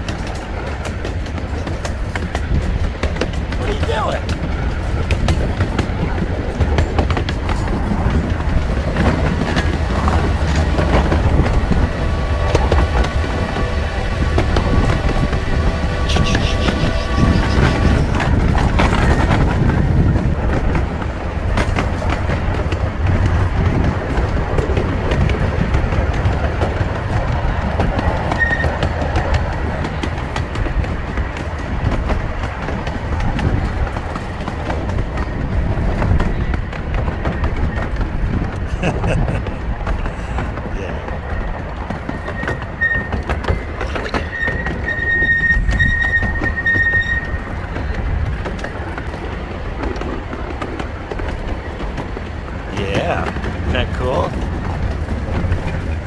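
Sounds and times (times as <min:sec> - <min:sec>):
train rolling rumble: 0:00.0 - 0:56.0
wheels clattering on rails: 0:00.0 - 0:56.0
high wheel squeal: 0:15.9 - 0:18.3, 0:28.3 - 0:28.9, 0:41.3 - 0:47.5.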